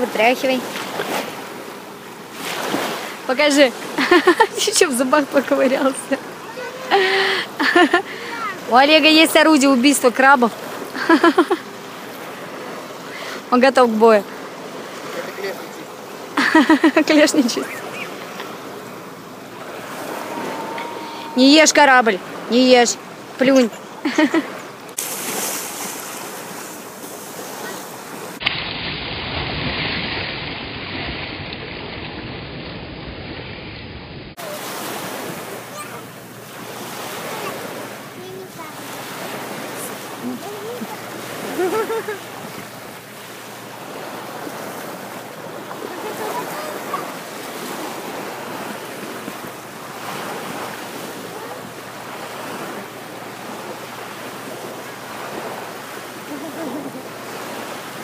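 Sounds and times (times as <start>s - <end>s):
waves washing onto beach: 0.0s - 58.0s
water splashing from swimmer: 24.9s - 32.7s.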